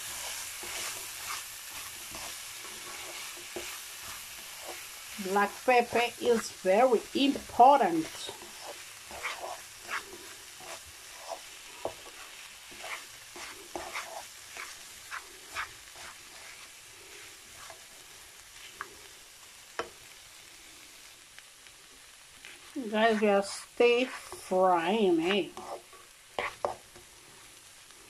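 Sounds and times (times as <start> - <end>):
spatula scraping a pan: 0.0 - 18.9, 22.4 - 24.5, 25.1 - 27.1
vegetables sizzling in a frying pan: 0.0 - 28.0
spatula tap: 26.4 - 26.8.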